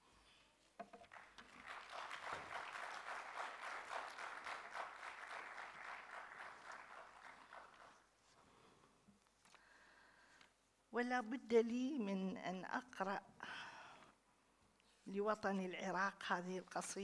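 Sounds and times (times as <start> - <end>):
audience applauding: 1.0 - 8.1.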